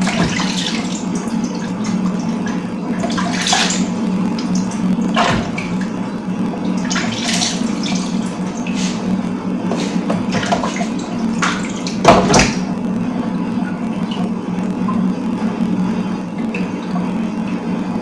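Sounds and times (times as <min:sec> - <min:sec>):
water splashing: 0:00.0 - 0:06.0, 0:06.6 - 0:09.1, 0:09.7 - 0:12.7
water running from a tap: 0:00.0 - 0:09.0
knocks in a sink: 0:12.0 - 0:12.6.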